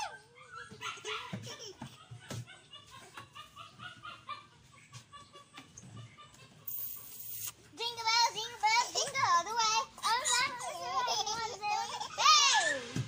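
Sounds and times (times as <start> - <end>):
young child giggling: 1.1 - 7.2.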